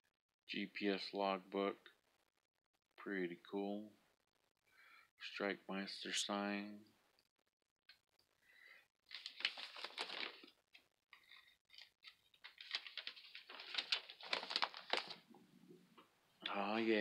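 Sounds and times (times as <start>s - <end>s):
paper pages rustling: 9.0s - 15.4s.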